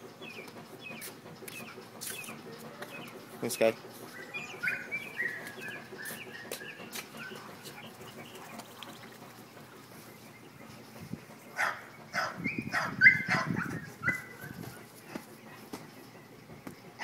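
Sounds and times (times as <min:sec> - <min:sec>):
dog whining yelps: 0:04.6 - 0:05.0, 0:11.6 - 0:14.5
dog barking: 0:11.6 - 0:14.3.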